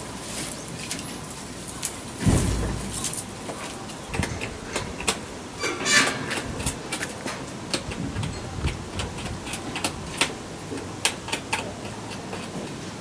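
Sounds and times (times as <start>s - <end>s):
porcupine clicks and ticks: 6.1s - 12.8s.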